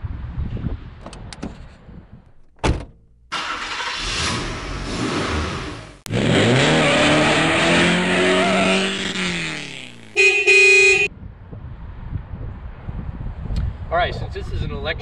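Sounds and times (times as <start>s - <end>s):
rush of car noise: 3.3s - 14.0s
car engine revving: 3.4s - 11.1s.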